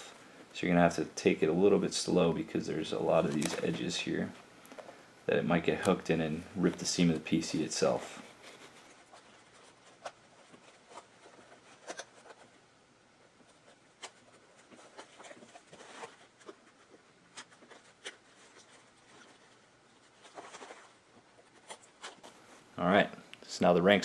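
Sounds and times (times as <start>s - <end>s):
fabric rubbing: 2.6s - 4.4s, 5.4s - 12.5s.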